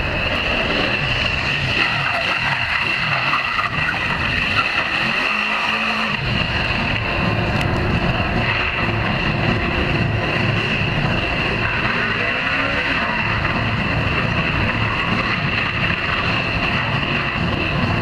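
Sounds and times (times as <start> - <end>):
high-pitched whine: 0.0 - 18.0
motorcycle engine revving: 0.0 - 18.0.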